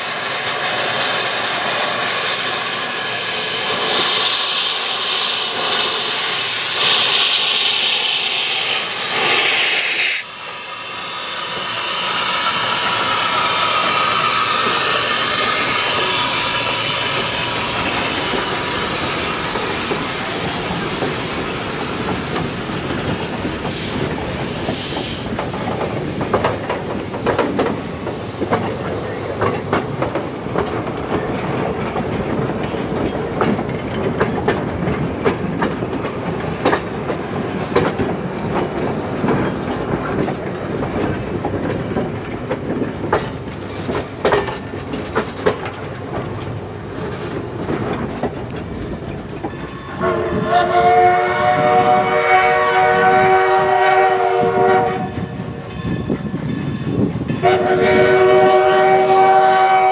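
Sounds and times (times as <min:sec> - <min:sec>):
wheels clicking over rail joints: 0:21.8 - 0:50.0.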